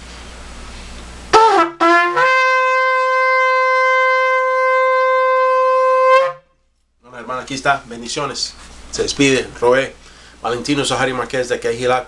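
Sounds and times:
shofar blowing: 1.3s - 6.6s.

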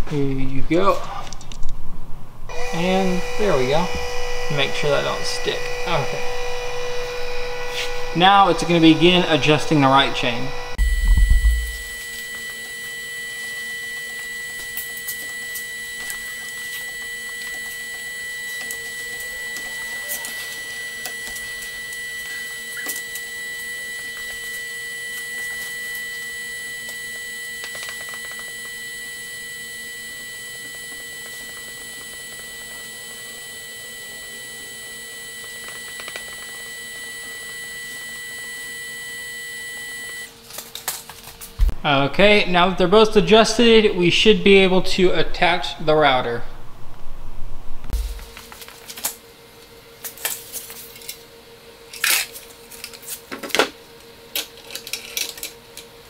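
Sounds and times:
gearmotor whining: 2.5s - 40.3s.

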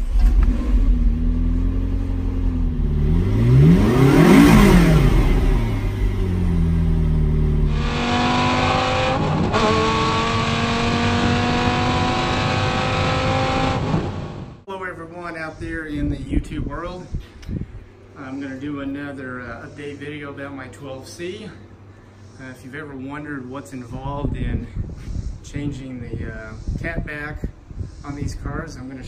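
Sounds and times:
car engine idling: 0.0s - 8.5s
car accelerating hard: 0.0s - 14.6s
engine revving: 0.0s - 14.6s.

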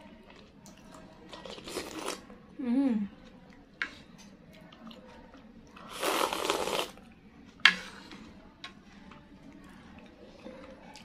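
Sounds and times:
mouth eating noise: 5.8s - 7.0s.

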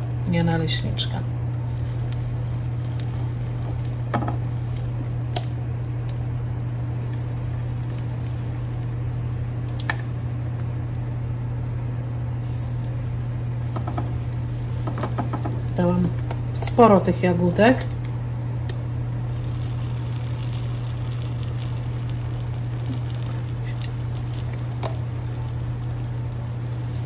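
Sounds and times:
steady low hum: 0.0s - 27.0s
batter sizzling in a frying pan: 1.5s - 16.6s, 18.2s - 27.0s.

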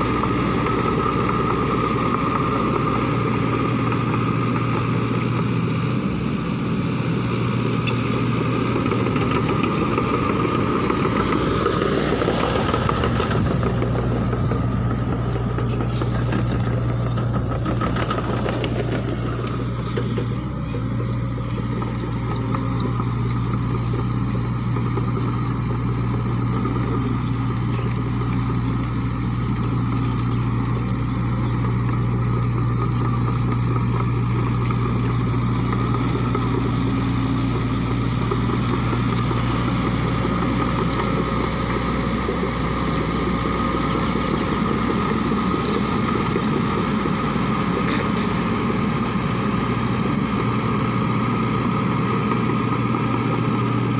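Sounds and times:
excavator diesel engine running: 0.0s - 53.9s.

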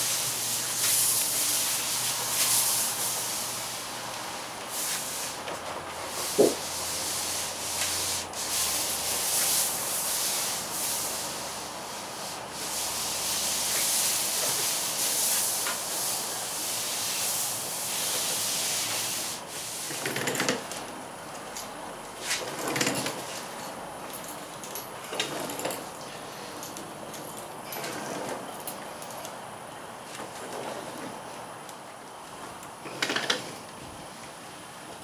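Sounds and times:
hand roller over sheet: 0.0s - 20.9s, 22.2s - 23.6s, 27.7s - 28.5s, 30.1s - 31.2s
palms rubbing across plastic sheet: 4.7s - 11.4s.

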